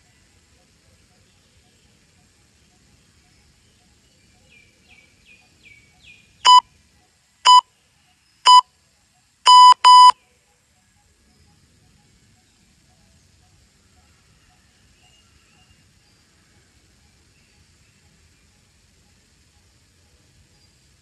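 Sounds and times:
electronic timer beeps: 0:09.5 - 0:10.2.

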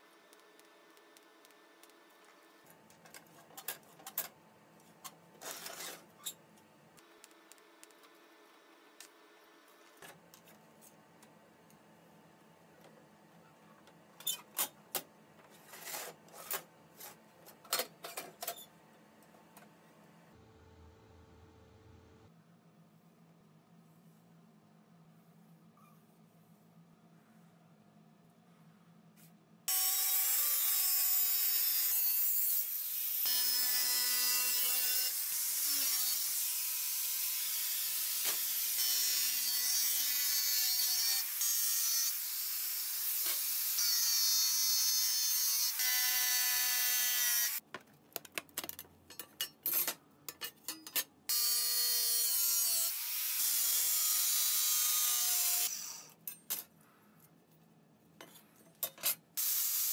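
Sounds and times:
power tool cutting steel sheet: 0:29.7 - 0:47.6, 0:51.3 - 0:56.1, 0:59.4 - 0:59.9.

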